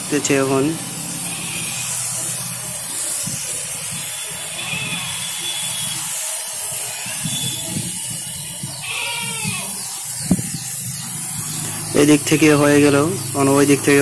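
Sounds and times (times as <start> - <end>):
spray gun hissing: 0.0 - 14.0.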